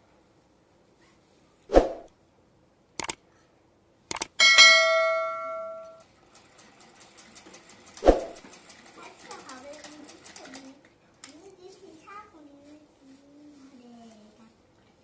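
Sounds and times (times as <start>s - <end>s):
quick clicks: 3.0s - 3.2s, 4.1s - 4.4s
bell dinging: 4.4s - 6.0s
sewing machine ticking: 6.0s - 10.6s.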